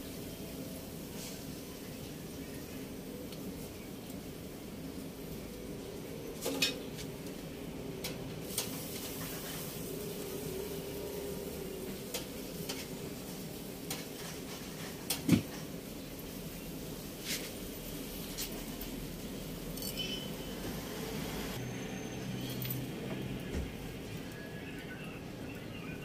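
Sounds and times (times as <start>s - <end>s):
faint grill hiss: 0.0s - 21.6s
metal tongs clinking on grill grate: 18.4s - 20.3s.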